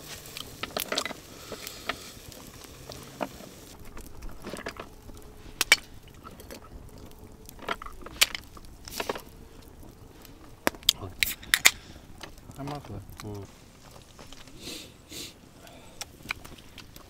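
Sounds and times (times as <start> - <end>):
campfire hissing and crackling: 0.0 - 17.0.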